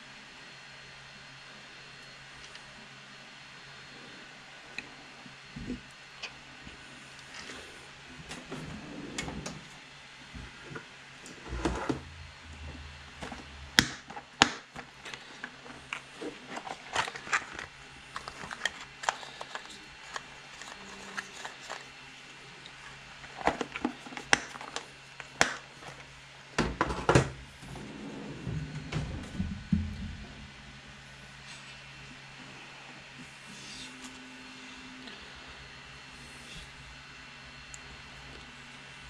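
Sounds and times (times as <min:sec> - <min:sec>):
plastic box opening: 0:13.2 - 0:21.9, 0:23.2 - 0:26.0
small parts clicking and rattling: 0:14.8 - 0:21.9.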